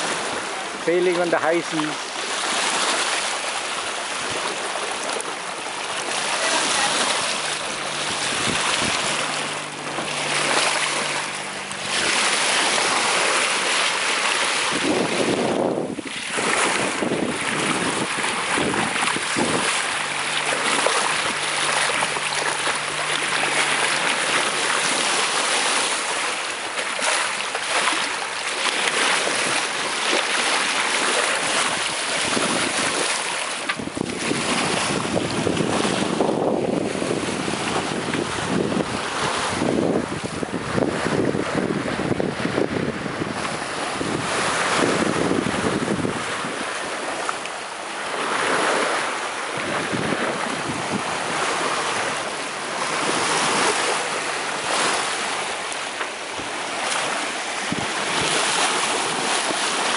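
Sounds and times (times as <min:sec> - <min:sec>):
water rushing along hull: 0:00.0 - 0:59.9
wind buffeting microphone: 0:04.0 - 0:26.2, 0:28.9 - 0:55.4, 0:56.3 - 0:59.9.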